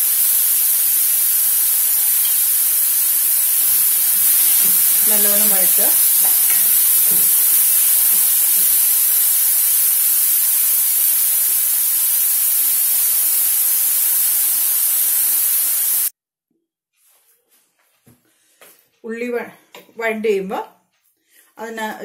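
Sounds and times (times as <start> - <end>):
onions sizzling in hot oil: 0.0 - 16.1.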